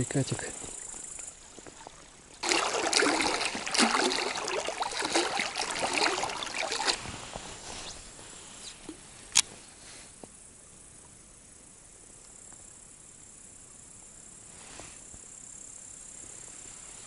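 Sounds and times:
river water splashing against raft: 0.5 - 9.0.

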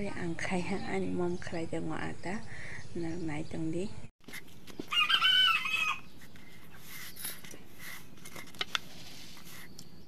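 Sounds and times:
rooster crowing: 4.9 - 6.1.

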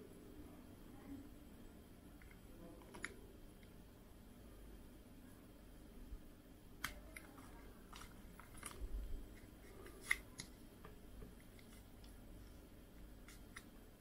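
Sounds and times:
plastic clicks and snaps: 6.8 - 8.8, 13.2 - 13.7.

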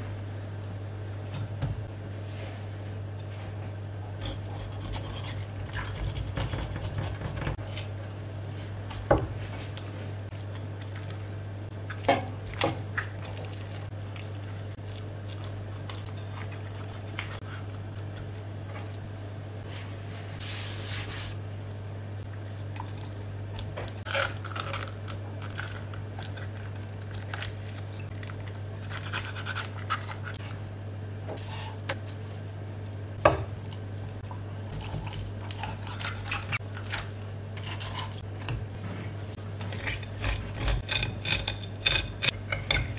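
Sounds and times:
steady low hum: 0.0 - 42.9
knife cutting and scraping: 4.2 - 7.3, 28.8 - 30.5, 35.5 - 38.3.

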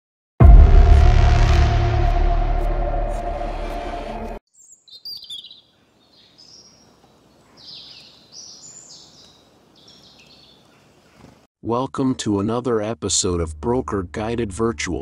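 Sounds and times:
loud intro music: 0.4 - 4.4
birds chirping: 4.5 - 11.4
faint outdoor background noise: 4.5 - 11.4.

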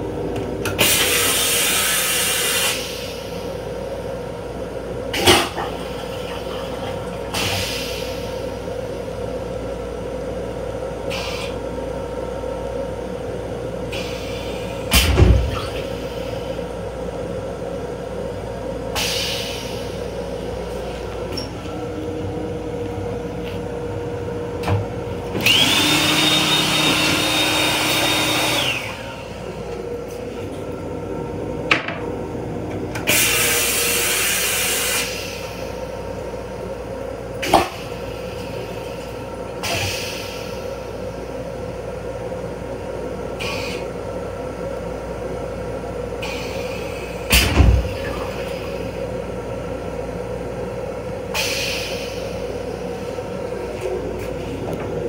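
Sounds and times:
train hum from inside: 0.0 - 25.7, 28.6 - 55.0
hand dryer blowing: 25.4 - 29.2.

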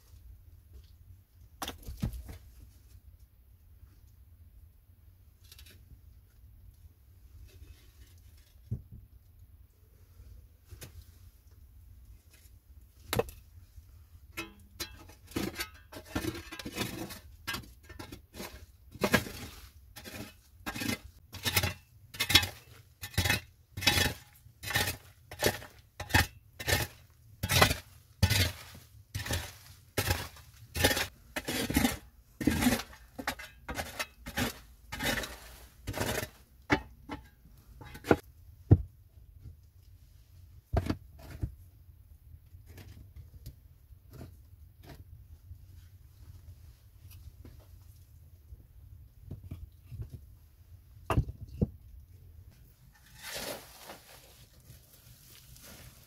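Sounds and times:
shovel chopping and scraping earth: 14.4 - 37.3.

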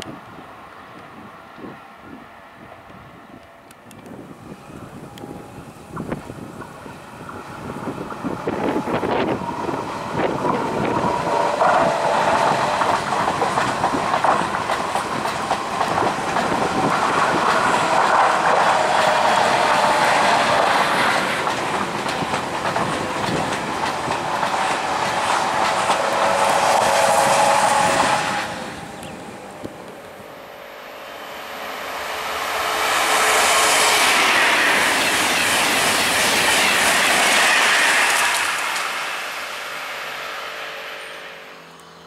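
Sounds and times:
train whine: 0.0 - 42.0
train wheels clattering on track: 5.1 - 30.2, 31.8 - 40.0.

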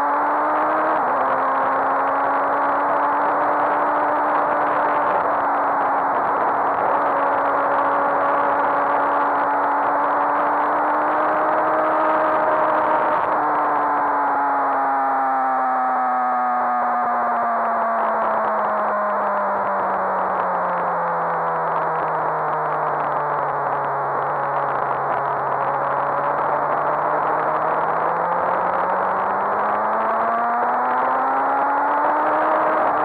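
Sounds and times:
motorcycle engine revving: 0.0 - 14.2, 21.7 - 33.0
wind noise: 0.3 - 14.1.

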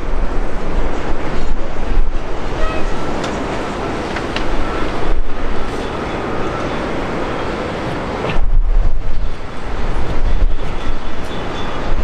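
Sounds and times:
jet engines rumbling: 0.0 - 12.0
wind buffeting microphone: 0.0 - 12.0.

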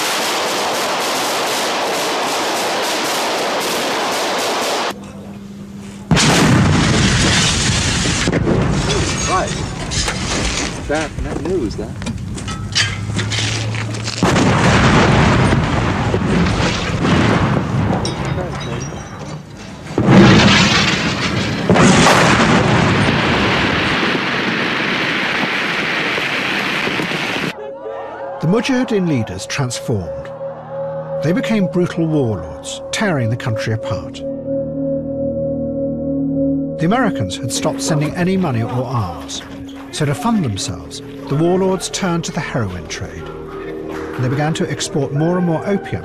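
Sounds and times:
loud explosions: 0.0 - 5.0, 6.1 - 11.2, 14.2 - 18.6, 19.9 - 27.6
low hum: 27.5 - 46.0.

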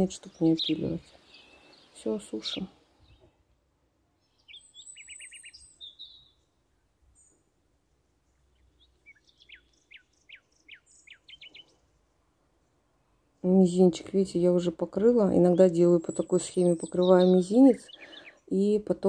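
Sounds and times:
songbird trilling: 0.0 - 3.2, 4.2 - 6.5, 8.5 - 11.8, 15.2 - 18.8.

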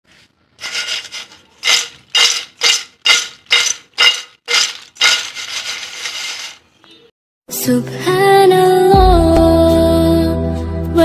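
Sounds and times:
chips rattling in steel bowl: 0.6 - 6.7.

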